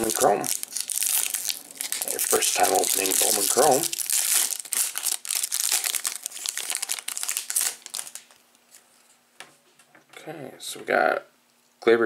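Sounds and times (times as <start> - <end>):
foil wrapper crinkling and tearing: 0.0 - 8.4.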